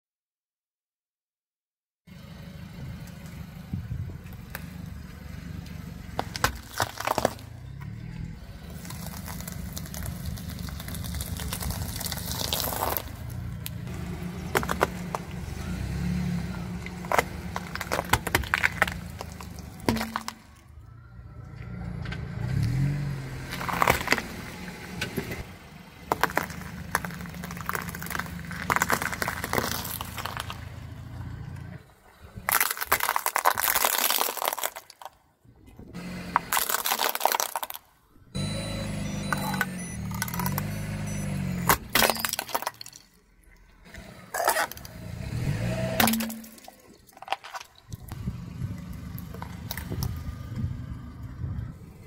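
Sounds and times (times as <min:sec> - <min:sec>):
car engine rumbling: 0:02.1 - 0:52.0
vegetables crunching under tyre: 0:06.2 - 0:08.0, 0:08.6 - 0:20.7, 0:22.6 - 0:24.4, 0:26.1 - 0:31.0, 0:32.2 - 0:35.2, 0:36.0 - 0:38.4, 0:39.2 - 0:50.7.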